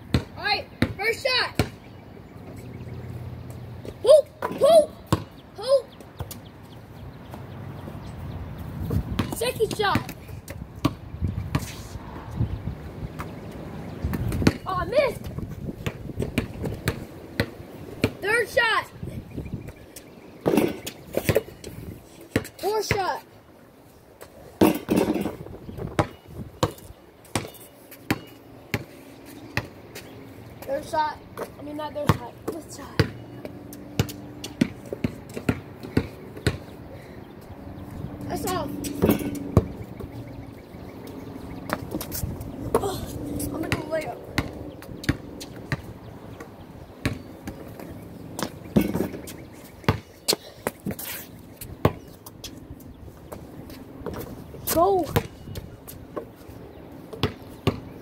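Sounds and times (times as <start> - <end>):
ball bouncing on pavement: 0.0 - 2.0, 3.4 - 7.6, 8.8 - 18.7, 19.6 - 23.2, 24.2 - 58.0
basketball hitting hoop: 39.0 - 39.8, 48.8 - 49.2.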